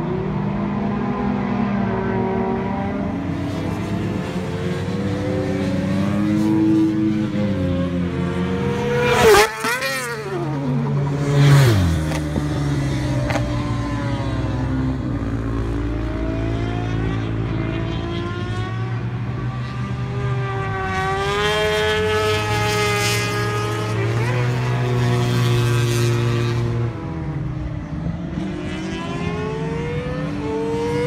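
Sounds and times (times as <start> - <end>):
distant racing engines: 0.0 - 31.0
scooters passing by: 2.7 - 31.0.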